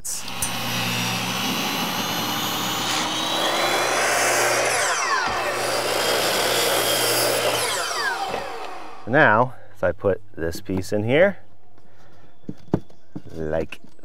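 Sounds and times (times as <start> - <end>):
miter saw cutting plastic trim: 0.0 - 9.1.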